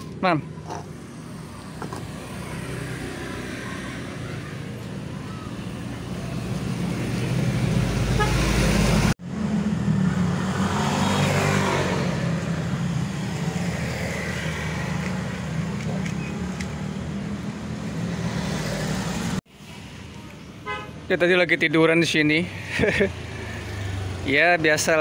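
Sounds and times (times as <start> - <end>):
passing vehicle: 0.0 - 19.9, 22.4 - 25.0
road traffic: 0.0 - 25.0.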